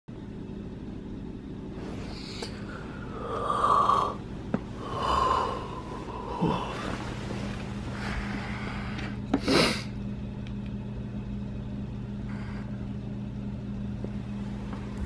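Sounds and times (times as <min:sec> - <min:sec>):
steady low hum: 0:00.1 - 0:15.0
person snoring: 0:01.8 - 0:09.9.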